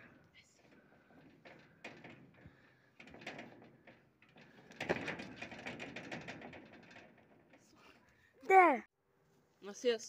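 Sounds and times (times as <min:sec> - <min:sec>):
metal railing rattling: 0:00.0 - 0:07.9.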